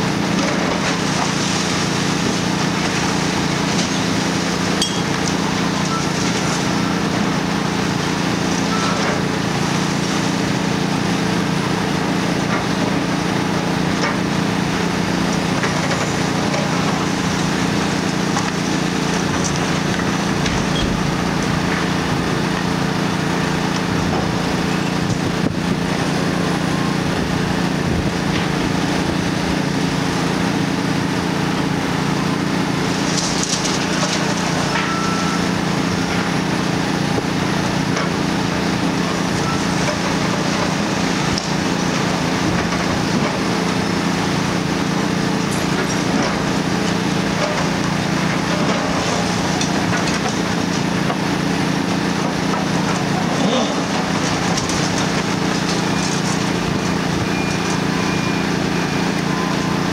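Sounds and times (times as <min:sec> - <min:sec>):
diesel engine running under load: 0:00.0 - 0:59.9
concrete and brick debris crunching: 0:45.3 - 0:58.7.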